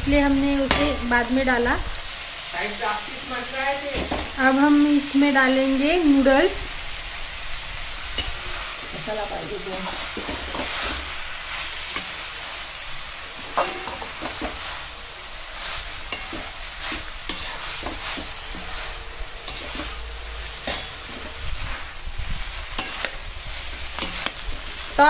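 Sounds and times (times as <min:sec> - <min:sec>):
noodles sizzling in a pan: 0:00.0 - 0:25.0
metal spatula scraping and knocking pan: 0:13.3 - 0:14.6, 0:15.8 - 0:21.9, 0:22.7 - 0:24.9.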